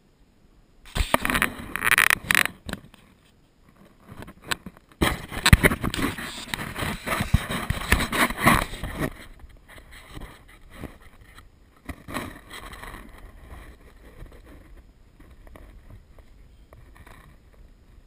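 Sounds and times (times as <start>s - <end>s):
camera handling noise: 0.9s - 3.0s.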